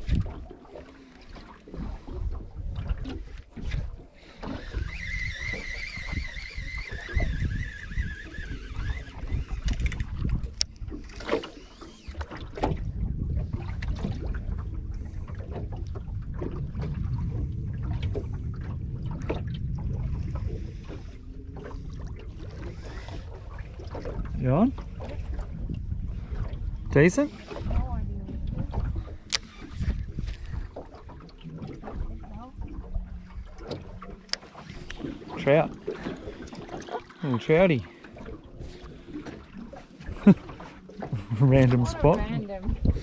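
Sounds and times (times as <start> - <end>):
water lapping against boat hull: 0.0 - 43.0
wind on microphone: 0.0 - 43.0
thin wavering whine: 4.4 - 9.9.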